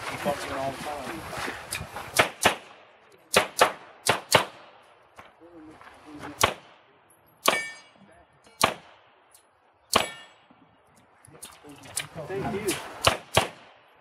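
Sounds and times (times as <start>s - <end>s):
handgun shots: 2.2s - 4.7s, 7.4s - 7.8s, 8.6s - 9.0s, 9.9s - 10.3s, 13.0s - 13.7s.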